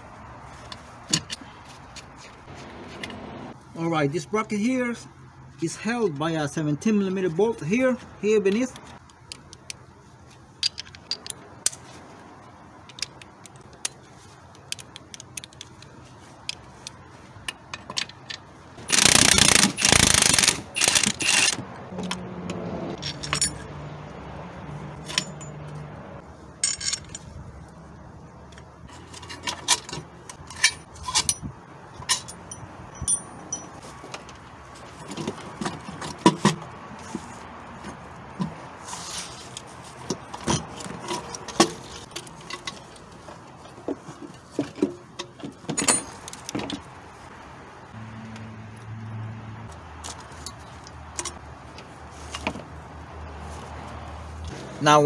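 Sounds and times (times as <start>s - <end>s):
hand tools clinking on metal: 23.0s - 23.7s, 25.0s - 25.8s, 26.6s - 27.3s, 29.0s - 33.8s, 45.2s - 46.5s.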